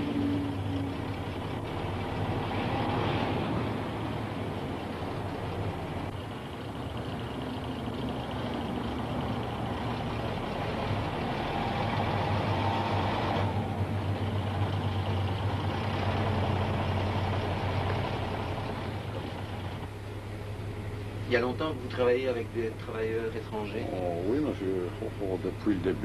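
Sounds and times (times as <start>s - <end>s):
bus engine humming: 0.0s - 26.0s
high engine whine: 0.0s - 26.0s.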